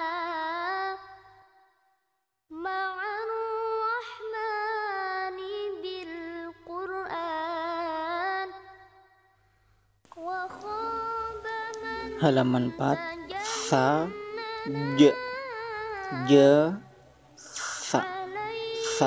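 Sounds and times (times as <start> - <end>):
high voice chanting: 10.2 - 19.0.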